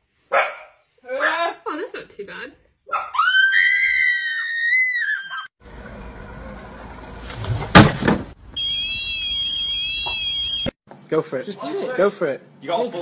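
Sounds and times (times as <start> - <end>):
mower alarm tone with warble: 8.5 - 10.8.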